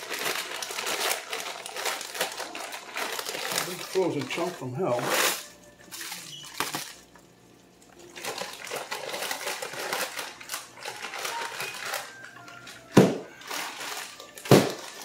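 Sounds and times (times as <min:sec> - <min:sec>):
crackling and popping in hot oil: 0:05.5 - 0:11.4.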